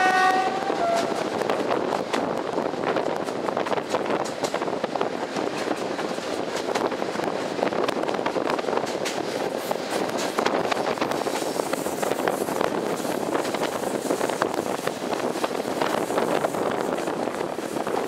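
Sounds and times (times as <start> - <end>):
train wheels rumbling on rail: 0.0 - 18.0
wind buffeting microphone: 0.0 - 18.0.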